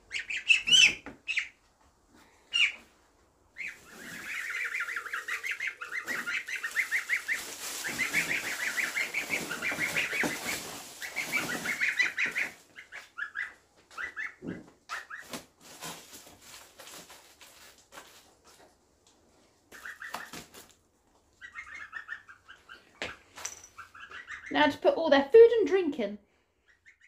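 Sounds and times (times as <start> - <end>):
young birds peeping: 0.0 - 18.6, 19.6 - 24.9, 26.5 - 27.0
foil insulation crinkling: 3.8 - 12.8, 14.9 - 18.7.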